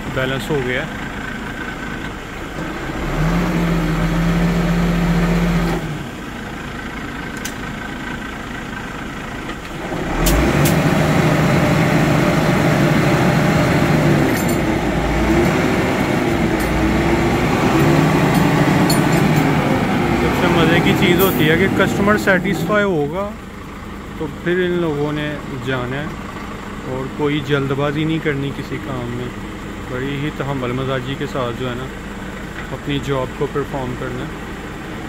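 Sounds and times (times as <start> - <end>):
crane engine revving: 0.0 - 35.0
sharp clicks or clanks: 14.2 - 14.7, 17.7 - 19.6.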